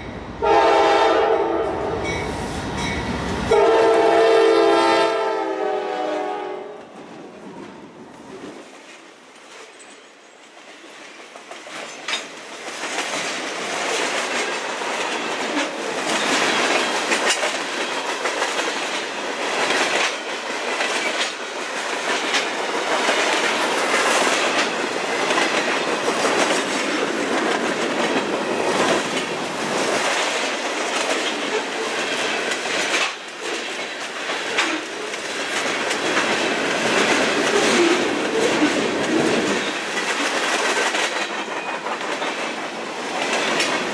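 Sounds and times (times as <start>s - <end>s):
freight train rumbling past: 0.0s - 9.6s, 10.5s - 43.9s
wheels clicking over rail joints: 8.8s - 43.9s.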